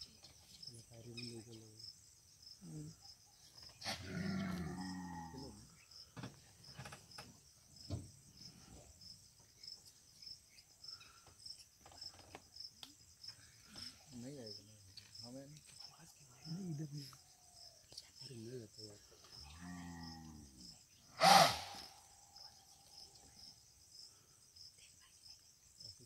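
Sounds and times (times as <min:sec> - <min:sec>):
insects chirping: 0:00.0 - 0:26.0.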